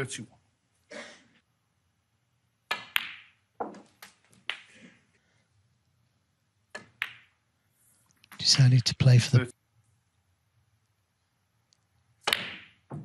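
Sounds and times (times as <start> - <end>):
snooker balls clicking and knocking: 2.6 - 4.8, 6.6 - 7.4, 12.2 - 13.0
cue tip striking ball: 2.7 - 3.9.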